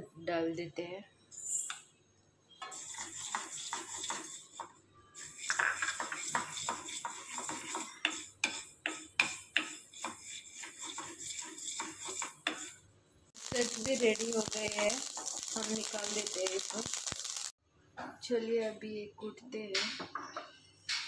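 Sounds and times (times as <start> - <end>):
seeds and spatula scraping pan: 2.7 - 12.8, 13.4 - 17.5.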